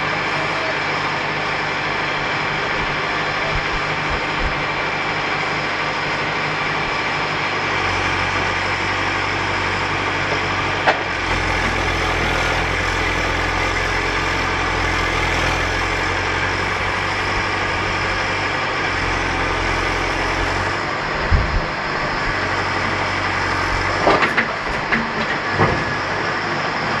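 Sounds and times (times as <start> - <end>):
backhoe diesel engine running: 0.0 - 27.0.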